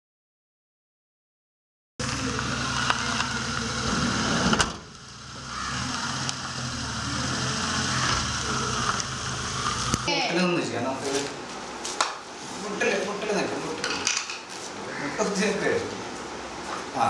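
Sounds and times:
van engine running: 2.0s - 10.1s.

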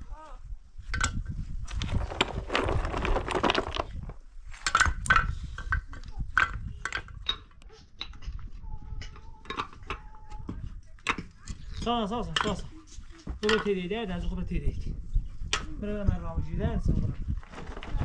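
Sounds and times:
stones and blocks clattering: 0.9s - 7.5s.

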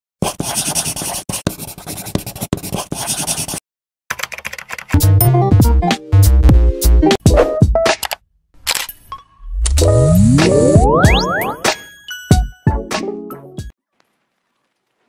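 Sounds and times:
pen scratching on paper: 0.2s - 3.6s
electronic music: 9.2s - 13.2s.

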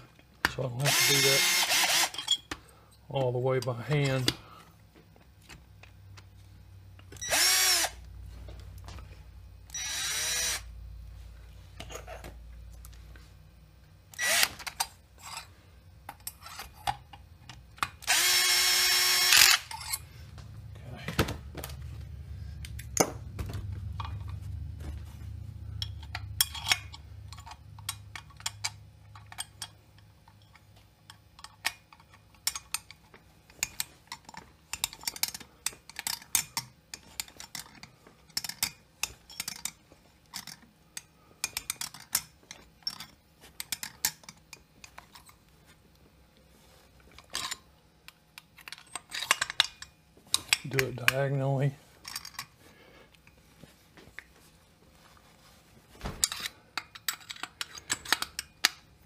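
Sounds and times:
low hum: 19.6s - 29.3s.

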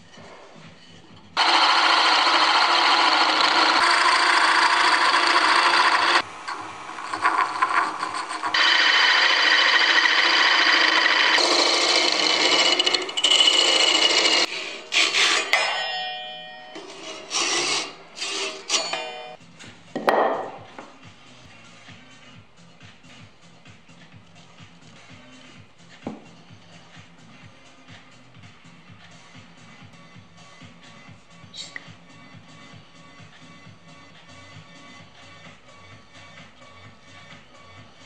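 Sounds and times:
hand saw rasping through wood: 1.4s - 6.2s, 8.5s - 15.7s, 16.8s - 19.2s.

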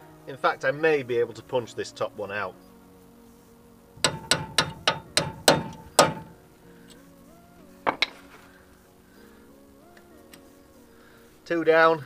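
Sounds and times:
hammer striking metal punch: 4.0s - 6.4s.

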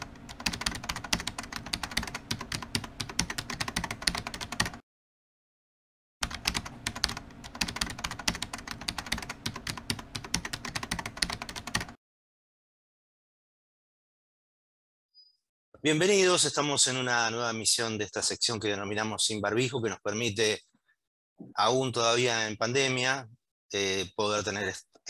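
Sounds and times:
computer keyboard typing: 0.0s - 4.8s, 6.2s - 12.0s.

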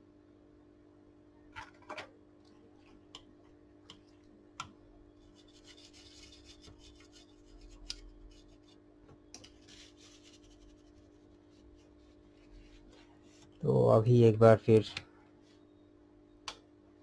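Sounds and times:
steady electrical hum: 0.0s - 17.0s
tissue rubbing on circuit board: 5.2s - 13.6s.

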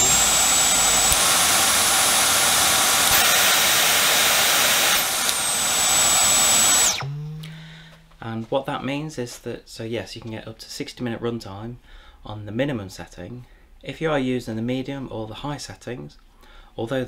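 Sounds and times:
vacuum motor whining: 0.0s - 8.2s.

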